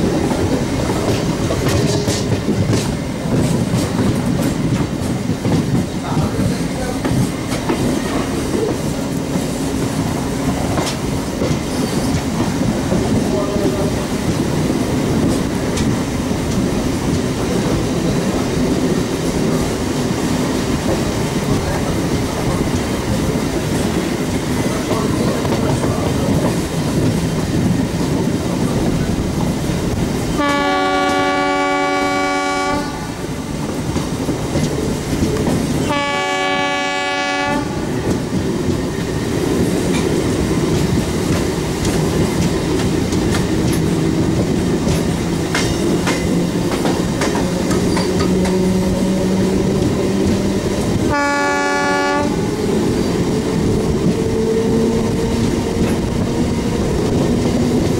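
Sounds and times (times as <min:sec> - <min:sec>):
train horn blasts: 0:30.3 - 0:33.2, 0:35.8 - 0:37.9, 0:51.0 - 0:52.4.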